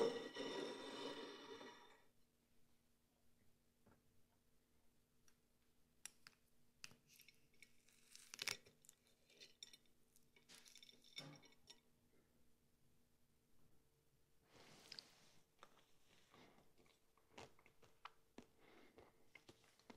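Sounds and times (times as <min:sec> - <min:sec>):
fork cracking chocolate shell: 0:06.0 - 0:09.7.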